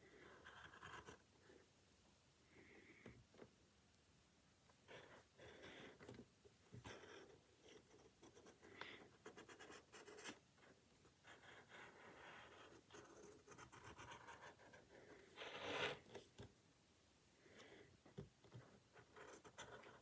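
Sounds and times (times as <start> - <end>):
pen scratching on paper: 0.1 - 1.2, 6.8 - 10.4, 11.2 - 16.0, 18.5 - 20.0.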